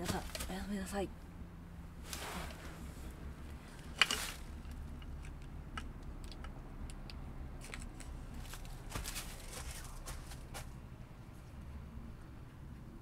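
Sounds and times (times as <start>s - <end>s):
steady low hum: 0.0s - 13.0s
fabric rustling: 2.0s - 3.2s.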